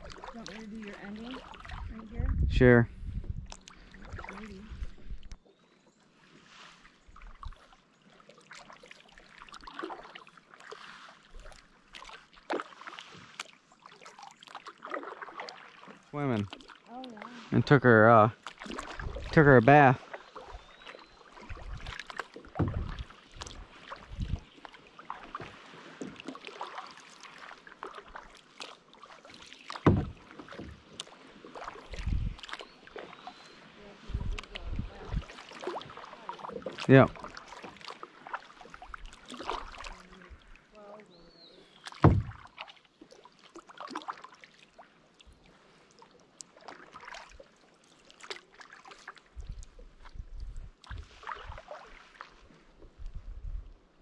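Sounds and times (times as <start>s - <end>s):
water splashing from paddle strokes: 0.0s - 2.2s, 3.2s - 5.4s, 6.2s - 53.1s
dull thumps: 29.9s - 30.2s, 42.0s - 42.5s.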